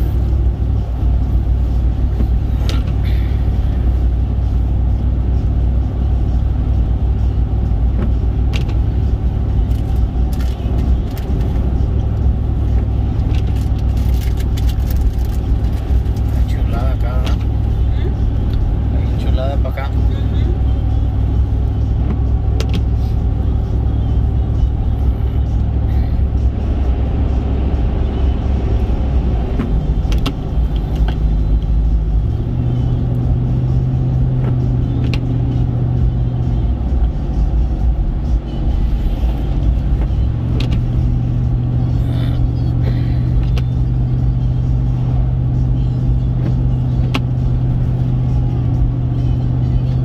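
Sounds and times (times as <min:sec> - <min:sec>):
music with deep bass line: 0:00.0 - 0:50.0
road and engine noise: 0:00.0 - 0:50.0.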